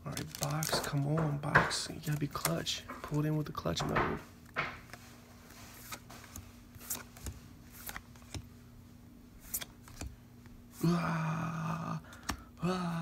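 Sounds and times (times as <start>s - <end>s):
low steady hum: 0.0s - 13.0s
trading cards snapping and sliding: 5.7s - 8.5s, 9.4s - 10.2s.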